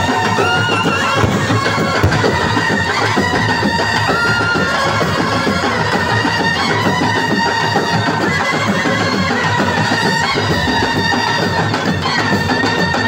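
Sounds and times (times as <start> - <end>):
loud dense music track: 0.0 - 6.9.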